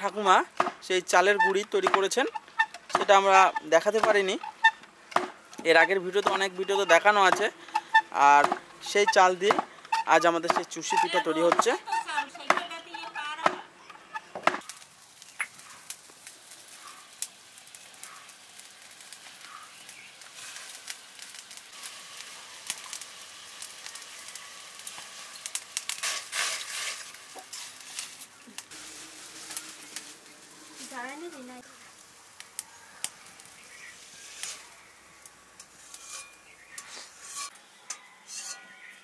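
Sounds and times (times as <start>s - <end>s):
faint bird calls: 19.3s - 20.1s
clicks and scrapes: 35.6s - 38.6s.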